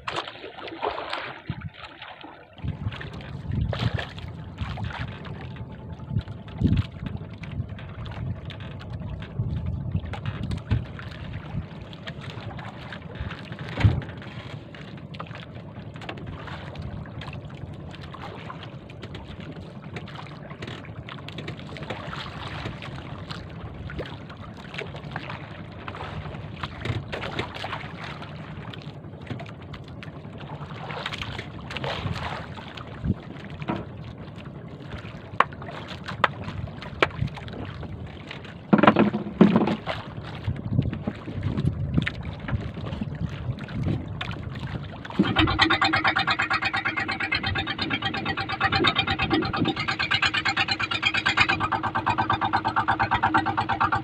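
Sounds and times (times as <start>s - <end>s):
boat engine drone: 0.0s - 54.0s
water noise: 0.0s - 54.0s
wind on microphone: 2.6s - 11.8s, 40.4s - 54.0s
sharp knocks and clicks: 38.7s - 39.8s.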